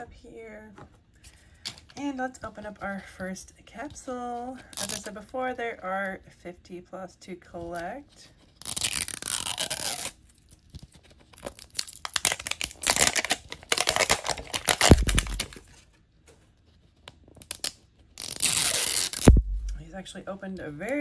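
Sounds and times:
wrapper crinkling and tearing: 8.5s - 15.9s, 17.2s - 19.6s
low thump: 19.3s - 19.8s.

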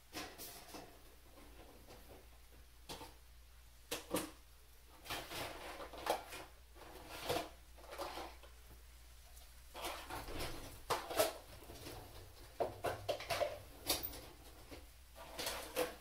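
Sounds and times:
knocks and rattles of drawers: 9.8s - 16.0s.

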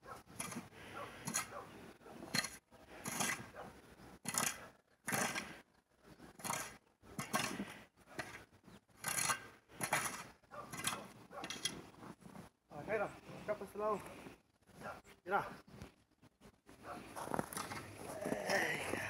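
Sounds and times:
snow shovel scraping snow: 4.3s - 5.6s.

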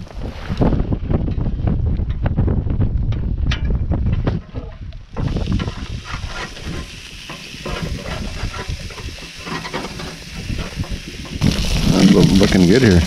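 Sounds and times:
patties sizzling on a grill: 5.1s - 13.0s
spatula clicking and scraping on grate: 5.6s - 11.4s.

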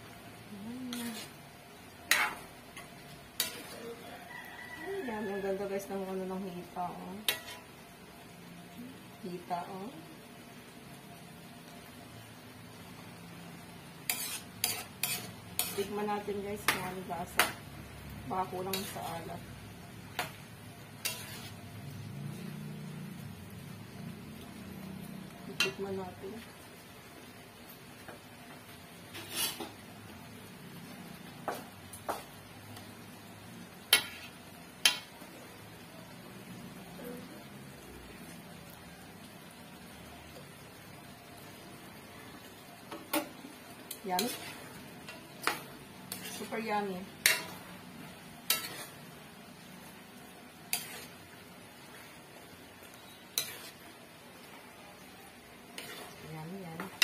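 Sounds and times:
metal utensil scraping wok: 0.8s - 7.9s, 13.9s - 17.6s, 18.2s - 23.3s, 25.3s - 26.5s, 28.9s - 30.0s, 33.7s - 35.8s, 42.3s - 57.0s
spatula knocking metal wok: 31.4s - 32.4s, 47.2s - 47.6s
metal utensil clinking on wok: 47.2s - 47.6s.

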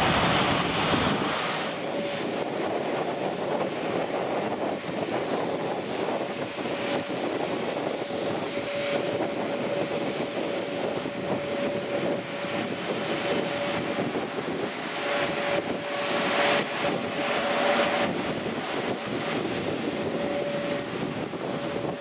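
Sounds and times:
jet engines taxiing: 0.0s - 22.0s.

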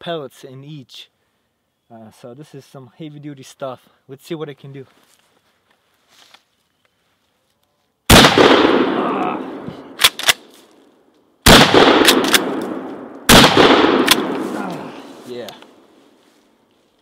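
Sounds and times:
shotgun shots echoing: 8.1s - 10.5s, 11.4s - 15.9s
shotgun pump racking clack: 10.0s - 10.5s, 12.0s - 12.7s.

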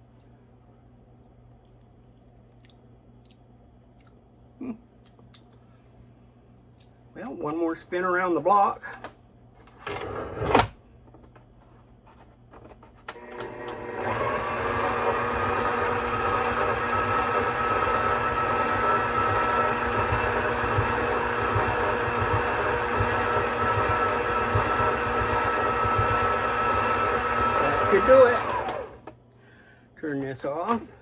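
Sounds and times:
stand mixer motor whine: 13.2s - 29.1s.

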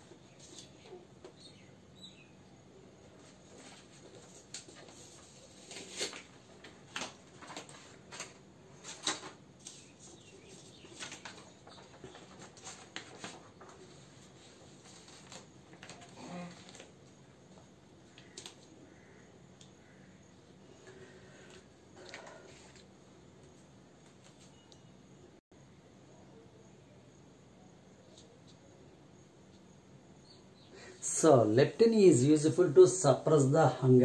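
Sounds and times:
paper rustling and crackling: 0.1s - 1.0s, 3.2s - 18.8s, 20.8s - 24.6s.

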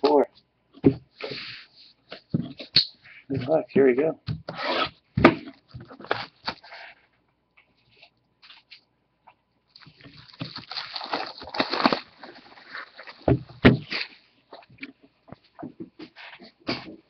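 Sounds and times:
plastic wrap crinkling: 9.7s - 14.2s.

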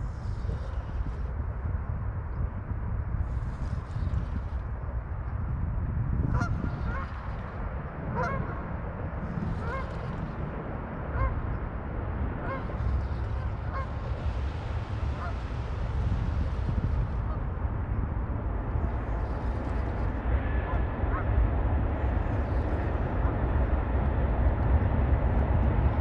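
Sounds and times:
wind rumble on microphone: 0.0s - 26.0s
geese honking: 9.5s - 9.9s, 12.4s - 14.0s, 15.2s - 15.4s.

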